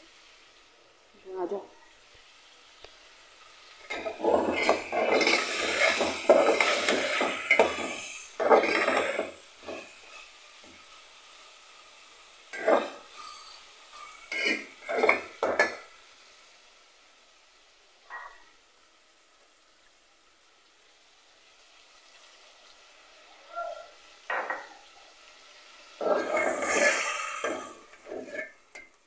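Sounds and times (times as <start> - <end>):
metal spoon scraping a pot: 3.9 - 9.9, 12.6 - 15.8, 26.0 - 28.9.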